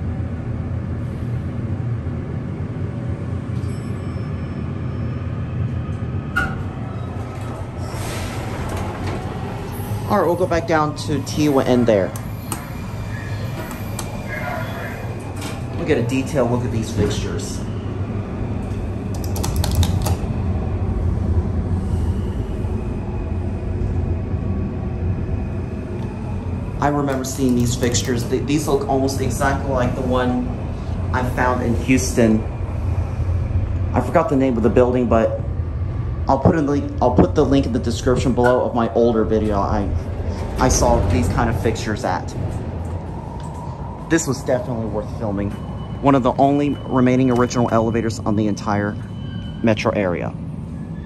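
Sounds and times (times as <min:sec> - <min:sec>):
elevator machinery rumble: 0:00.0 - 0:51.0
elevator chime: 0:03.5 - 0:07.2, 0:44.6 - 0:51.0.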